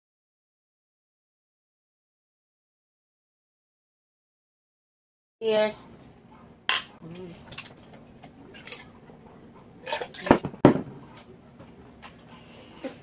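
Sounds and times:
glasses set down on table: 0:10.2 - 0:10.9.

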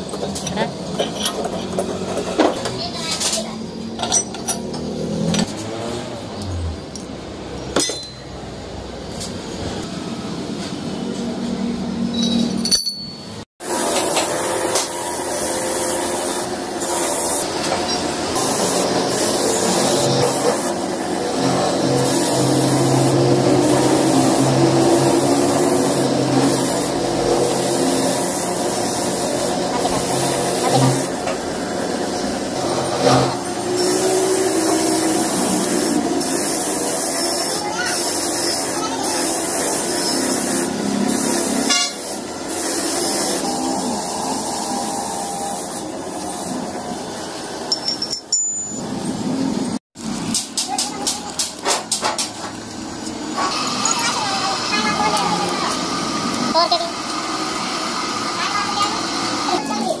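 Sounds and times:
metal engine parts clinking: 0:00.0 - 0:02.2, 0:04.0 - 0:05.5, 0:06.8 - 0:08.5, 0:12.0 - 0:13.4, 0:47.7 - 0:49.0.

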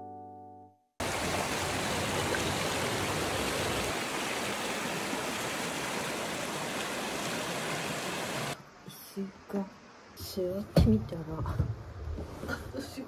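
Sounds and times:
stream flowing water: 0:01.0 - 0:08.6.

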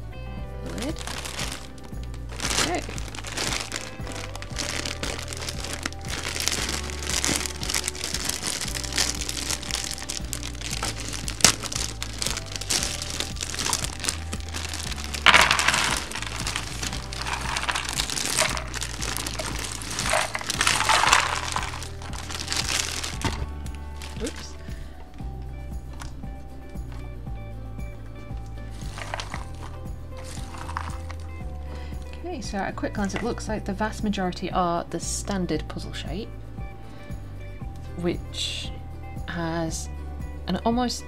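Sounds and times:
background music: 0:00.0 - 0:41.0
plastic bag crinkling: 0:00.7 - 0:24.9, 0:28.7 - 0:31.3.

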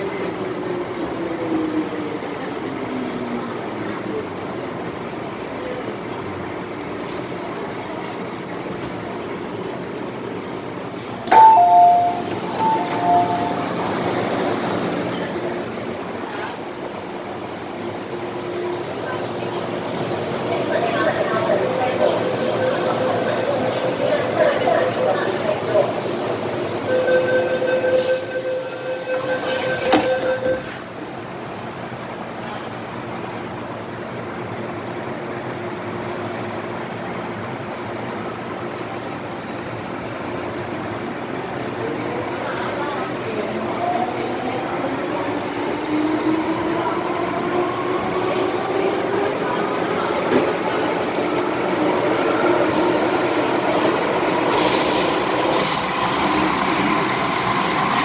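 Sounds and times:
train running noise: 0:00.0 - 0:58.0
high wheel squeals: 0:08.8 - 0:10.2, 0:54.0 - 0:56.5.

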